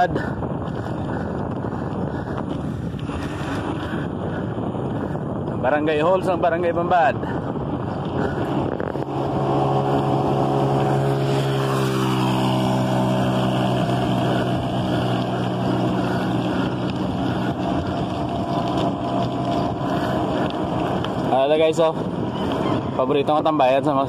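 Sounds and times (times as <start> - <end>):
motor engine running: 7.2 - 23.0.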